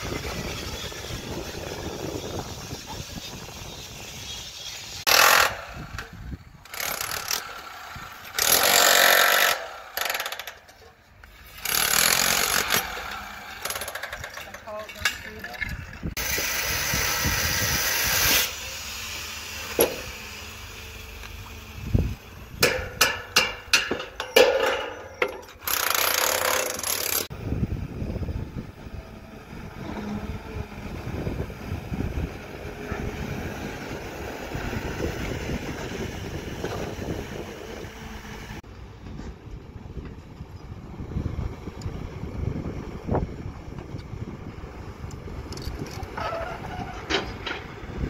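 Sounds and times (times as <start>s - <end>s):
excavator diesel engine running: 27.4s - 48.0s.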